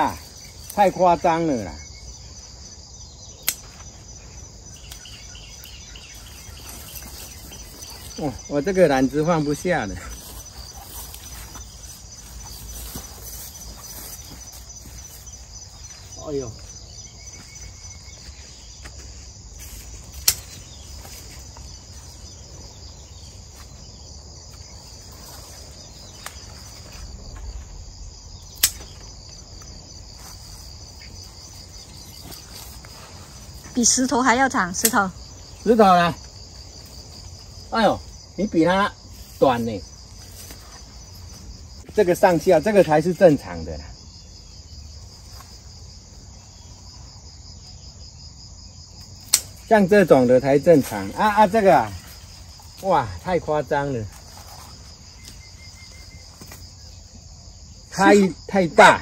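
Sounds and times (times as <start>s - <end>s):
insects chirring: 0.0s - 59.0s
sharp clicks: 3.4s - 3.7s, 28.5s - 29.1s
pruning shears snipping stem: 3.4s - 3.8s, 20.1s - 20.6s, 28.6s - 29.0s, 49.2s - 49.6s.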